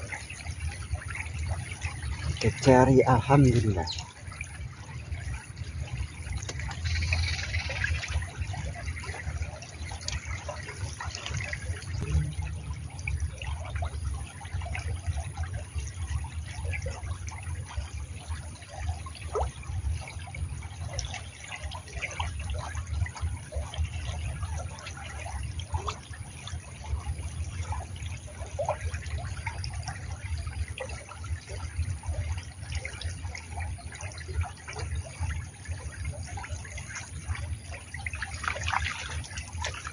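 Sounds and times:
steady low rumble: 0.0s - 20.9s
river water trickling over stones: 0.0s - 39.9s
small drips and splashes: 0.0s - 39.9s.

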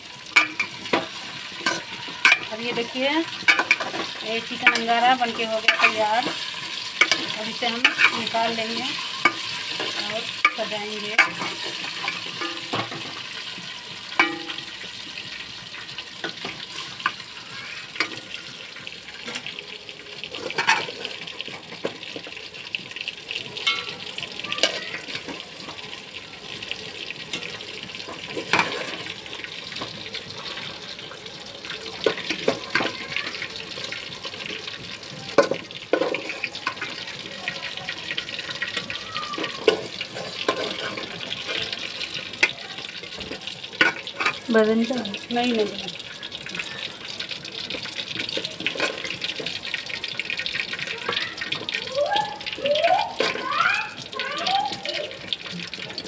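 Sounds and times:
metal spoon scraping pot: 0.4s - 13.2s, 39.6s - 41.8s.

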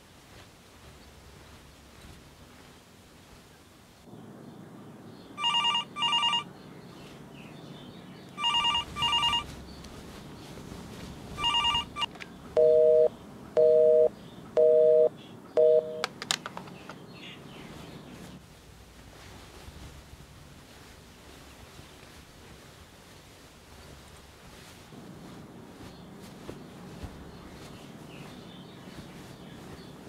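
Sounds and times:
phone ringing: 5.4s - 6.5s, 8.4s - 9.5s, 11.4s - 16.0s
low-pitched beeps: 11.4s - 16.0s.

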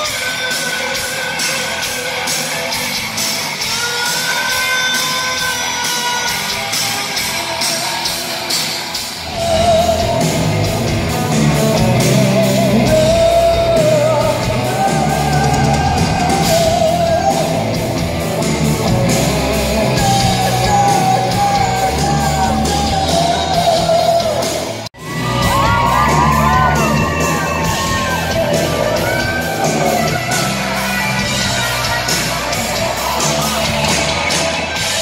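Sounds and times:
live rock band playing: 0.0s - 35.0s
man singing long notes: 9.2s - 34.0s.

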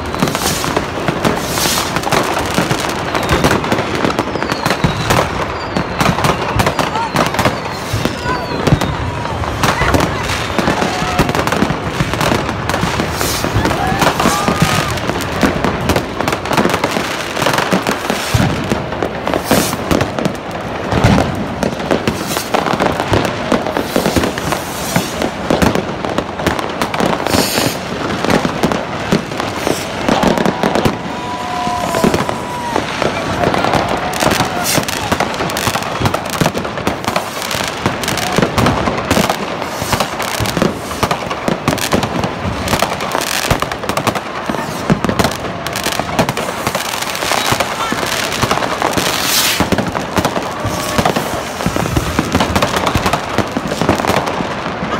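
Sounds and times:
crowd voices: 0.0s - 54.9s
firecracker bangs and crackles: 0.0s - 54.9s
rocket bursts: 19.3s - 20.2s, 27.2s - 43.1s, 46.1s - 54.2s.

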